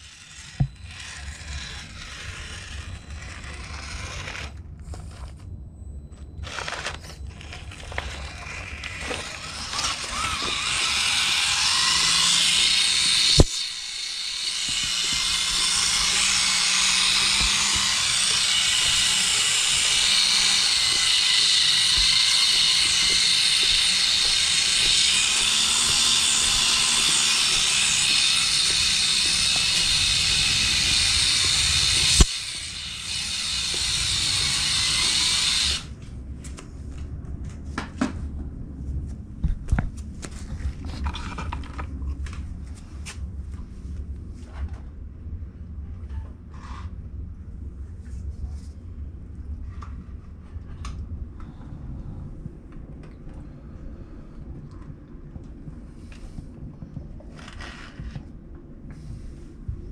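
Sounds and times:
toy truck electric motor whirring: 0.0s - 5.4s, 6.4s - 36.0s, 57.4s - 58.2s.

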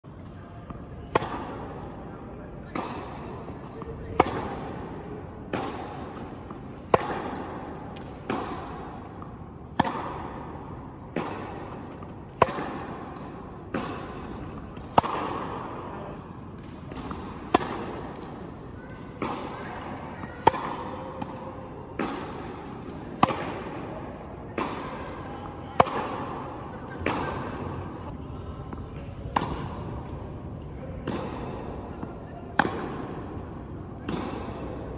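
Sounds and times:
tennis ball bouncing: 0.2s - 28.1s
racket hitting tennis ball: 0.6s - 28.1s.

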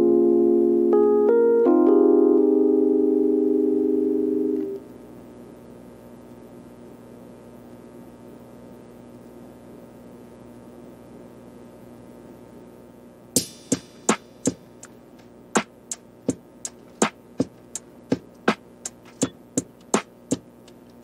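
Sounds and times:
quiet held music tone: 12.0s - 21.0s
sharp percussive beats: 13.4s - 20.9s.

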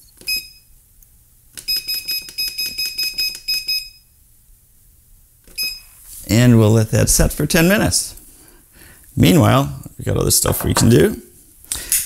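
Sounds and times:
microwave keypad beeping: 0.2s - 0.7s, 1.6s - 4.1s, 5.5s - 5.9s.

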